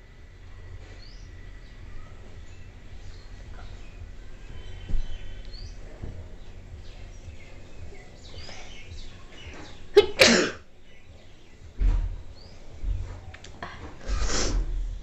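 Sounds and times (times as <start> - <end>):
faint bird chirps: 0.0 - 15.0
woman sneezing: 10.0 - 10.6
dull thump: 11.7 - 14.0.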